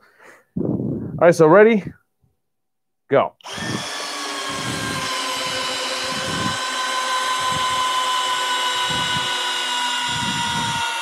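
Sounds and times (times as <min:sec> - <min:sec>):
cordless screwdrivers whining: 0:03.4 - 0:11.0.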